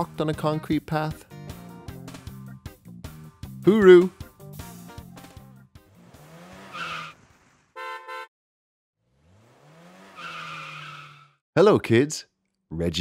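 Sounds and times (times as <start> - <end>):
car horn beeps: 7.8 - 8.3.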